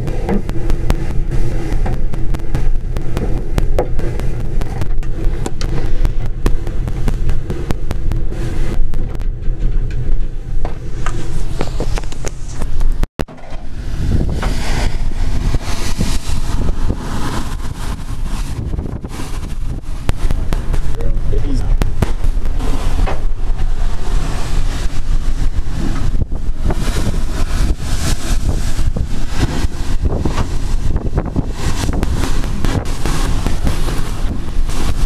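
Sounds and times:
boat engine rumble: 0:00.0 - 0:35.0
hiss: 0:13.7 - 0:21.1, 0:22.4 - 0:35.0.

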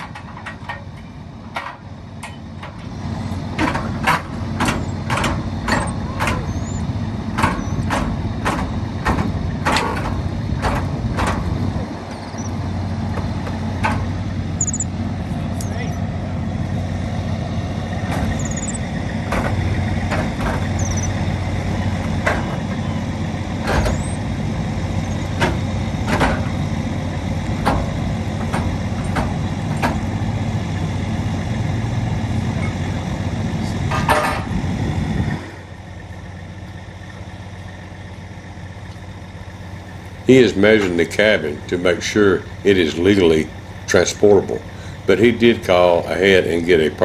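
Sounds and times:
sharp clicks and knocks: 0:00.0 - 0:06.5, 0:07.3 - 0:11.6, 0:13.1 - 0:14.1, 0:19.3 - 0:21.0, 0:25.4 - 0:26.6
diesel truck engine idling: 0:00.0 - 0:47.0.

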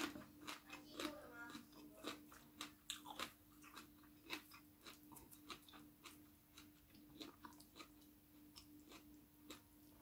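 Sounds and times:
person chewing food: 0:00.0 - 0:10.0.

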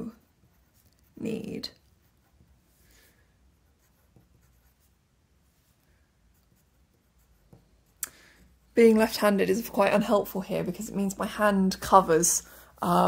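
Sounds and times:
pencil scratching on paper: 0:00.0 - 0:08.0.

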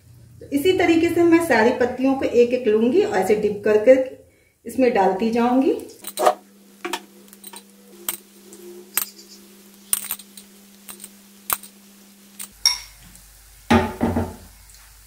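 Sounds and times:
frying in hot oil: 0:00.0 - 0:15.0
sharp crackling pops: 0:05.8 - 0:13.3.

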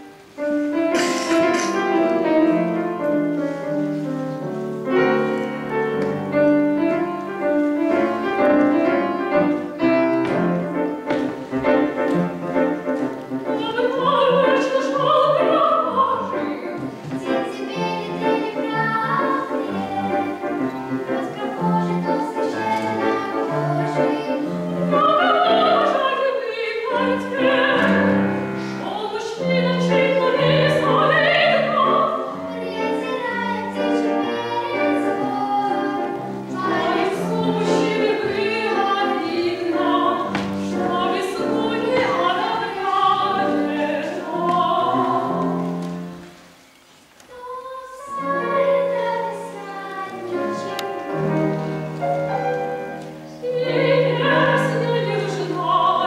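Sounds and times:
grand piano: 0:00.0 - 0:56.0
operatic singing: 0:13.5 - 0:45.6, 0:47.3 - 0:51.4, 0:53.3 - 0:56.0.

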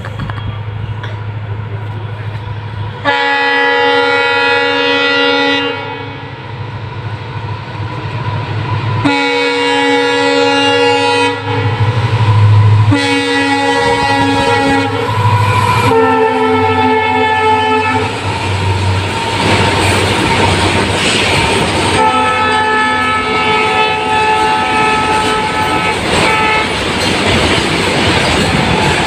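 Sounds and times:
locomotive engine rumble: 0:00.0 - 0:29.0
train horn blasts: 0:03.0 - 0:06.4, 0:09.0 - 0:18.9, 0:21.9 - 0:26.8.

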